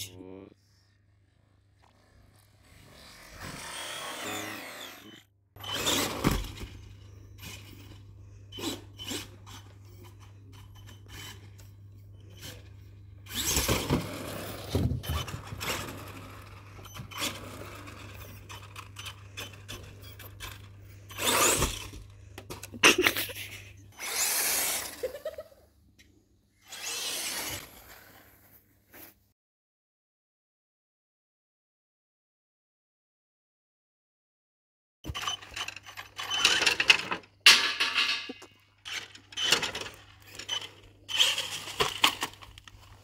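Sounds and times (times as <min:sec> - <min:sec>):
electric motor whining: 0:02.4 - 0:06.2, 0:26.6 - 0:28.1.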